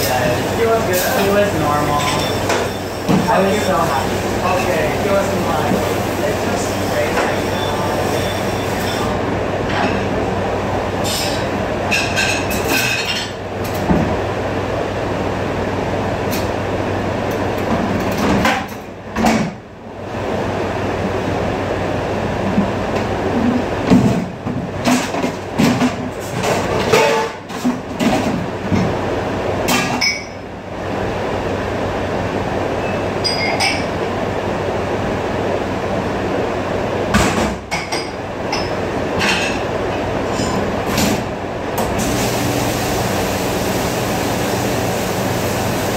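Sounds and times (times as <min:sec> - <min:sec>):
dishes and racks clattering: 0:00.0 - 0:09.1, 0:11.0 - 0:14.0, 0:23.4 - 0:29.0, 0:29.7 - 0:30.4, 0:33.2 - 0:34.0, 0:37.2 - 0:41.3
dishwasher machinery humming: 0:00.0 - 0:45.9.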